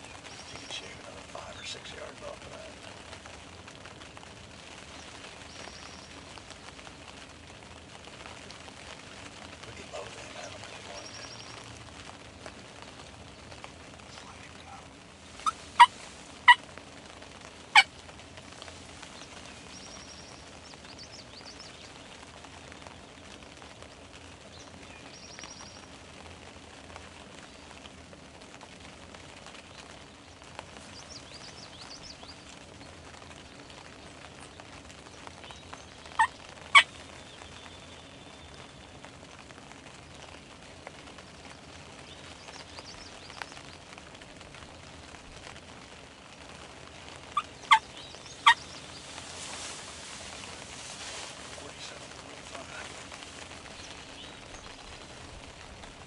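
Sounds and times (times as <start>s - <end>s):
wild turkey calling: 0.0s - 3.3s, 9.0s - 11.6s, 12.4s - 22.0s, 30.7s - 38.8s, 47.2s - 55.4s
faint songbird notes: 0.0s - 7.5s, 8.9s - 17.2s, 17.8s - 26.0s, 29.4s - 39.3s, 40.1s - 44.0s, 47.3s - 56.0s.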